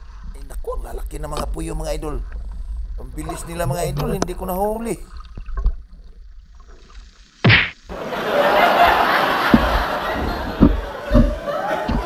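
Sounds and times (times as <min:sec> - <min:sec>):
water splashing and dripping: 0:05.0 - 0:07.1
sharp slap of water: 0:07.5 - 0:07.8.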